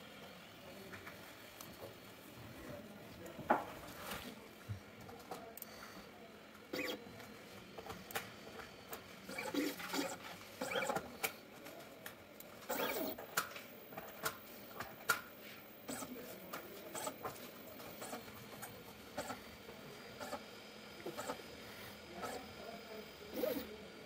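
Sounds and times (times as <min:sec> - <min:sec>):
brief mechanical whirs: 0:06.7 - 0:07.0, 0:12.7 - 0:13.6.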